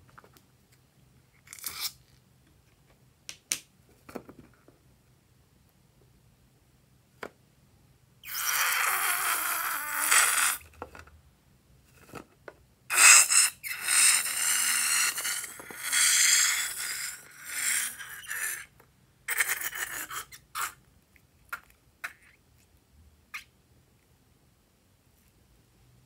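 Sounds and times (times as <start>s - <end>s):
rubber balloon squeaking: 8.2s - 10.6s, 12.9s - 18.7s.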